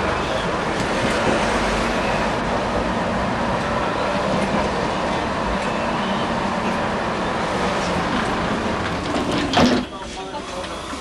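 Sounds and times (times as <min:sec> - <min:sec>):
tram wheels rumbling on rails: 0:00.0 - 0:11.0.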